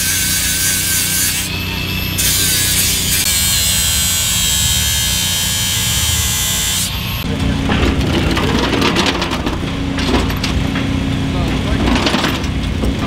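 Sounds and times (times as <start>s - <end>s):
power tool buzzing: 0.0s - 7.3s.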